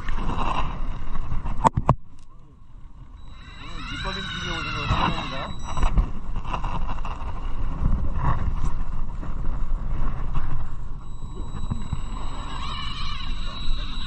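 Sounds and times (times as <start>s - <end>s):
knocks from fishing reel: 3.2s - 7.4s, 10.9s - 14.0s
boat engine running: 10.7s - 14.0s.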